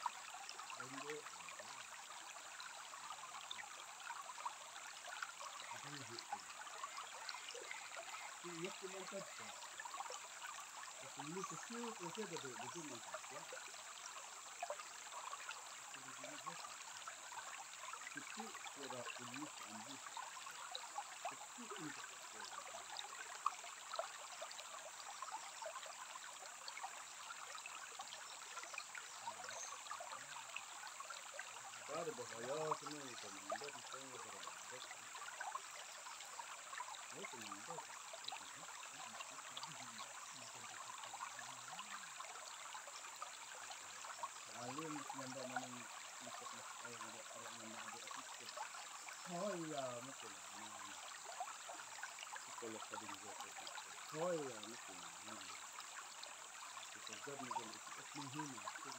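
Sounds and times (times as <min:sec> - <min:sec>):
stream trickling over stones: 0:00.0 - 0:58.9
faint human voices: 0:00.7 - 0:01.3, 0:05.5 - 0:09.9, 0:11.0 - 0:13.7, 0:15.8 - 0:16.7, 0:18.0 - 0:20.2, 0:21.2 - 0:23.0, 0:31.8 - 0:35.0, 0:37.1 - 0:42.0, 0:44.5 - 0:51.1, 0:52.5 - 0:55.5, 0:56.9 - 0:58.9.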